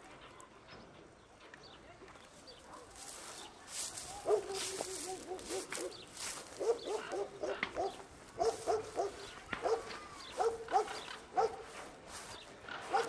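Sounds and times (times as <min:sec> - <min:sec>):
dog barking: 0:02.6 - 0:11.8.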